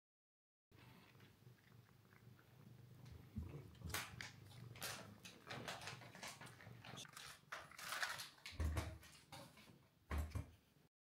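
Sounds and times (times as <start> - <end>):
cat crunching dry treats: 1.1 - 8.6.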